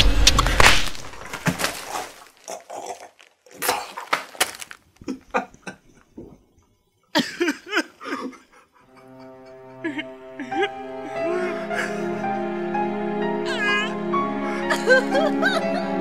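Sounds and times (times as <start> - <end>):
person coughing and hacking: 7.2 - 8.4.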